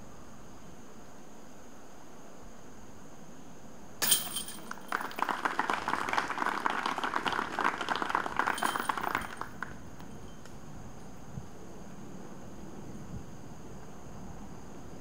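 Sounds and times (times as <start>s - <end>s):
disc hitting basket chains: 4.0s - 5.4s, 8.4s - 10.4s
people clapping: 4.0s - 10.2s.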